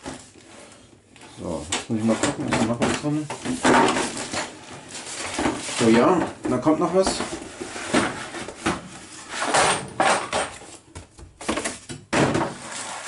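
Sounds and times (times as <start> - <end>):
plastic bags rustling: 0.0 - 9.5.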